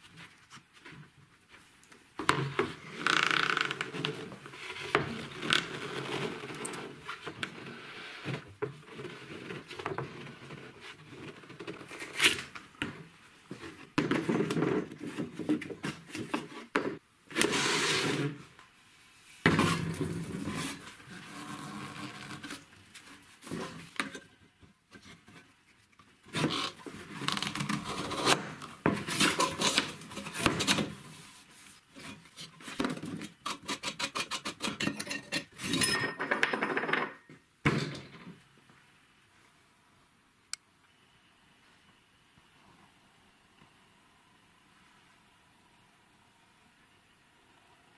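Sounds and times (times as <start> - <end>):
belt rubbing and scraping plastic: 2.6 - 12.6, 17.3 - 18.5, 19.7 - 35.7.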